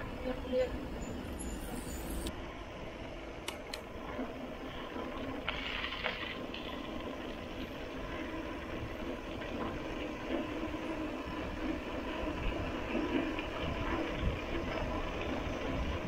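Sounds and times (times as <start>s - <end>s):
wind on microphone: 3.9s - 16.0s
bike tyres rumbling on concrete: 4.0s - 16.0s.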